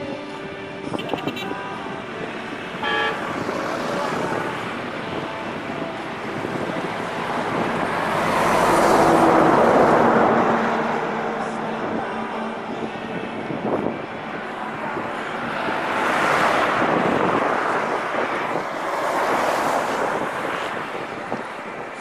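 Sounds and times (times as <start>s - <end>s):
car horn toot: 0.9s - 1.7s, 2.8s - 3.3s
vehicle passing: 1.2s - 22.0s.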